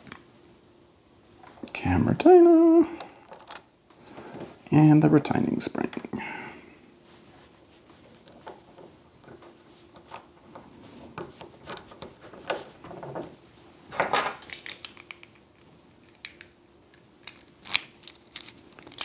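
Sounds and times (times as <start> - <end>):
lock parts rattling: 2.9 - 3.7, 7.9 - 13.3.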